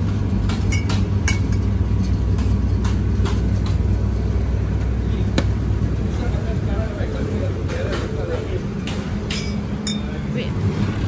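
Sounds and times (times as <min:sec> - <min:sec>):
steady low rumble: 0:00.0 - 0:11.0
glass bottles clinking: 0:09.3 - 0:10.3.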